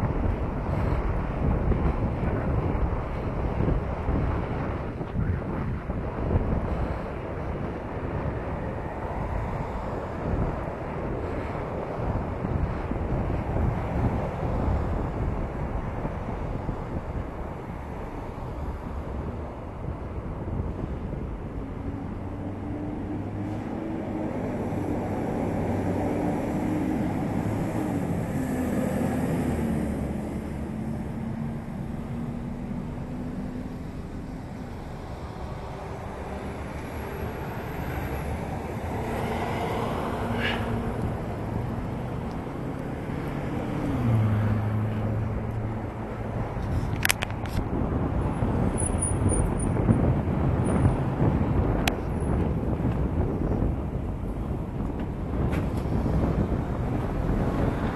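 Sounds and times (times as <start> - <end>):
street traffic rumble: 0.0 - 57.9
wind rushing over microphone: 0.0 - 57.9.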